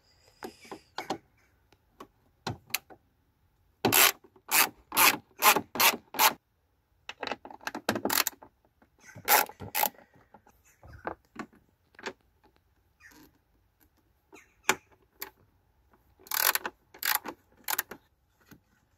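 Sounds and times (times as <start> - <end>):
socket ratchet rasping: 3.9 - 6.4, 16.2 - 18.0.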